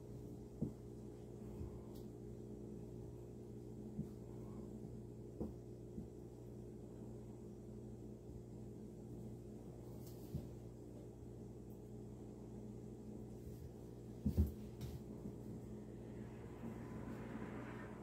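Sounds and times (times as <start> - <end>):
low electrical hum: 0.0 - 18.0
cats wrestling on tile floor: 0.2 - 2.1, 3.7 - 6.3, 9.7 - 11.1, 13.3 - 15.7.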